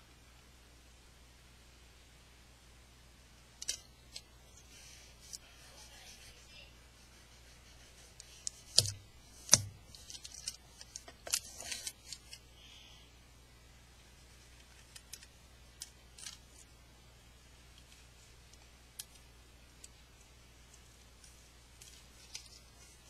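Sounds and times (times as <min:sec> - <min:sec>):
adhesive tape crackling: 0:07.6 - 0:12.4, 0:14.6 - 0:16.7.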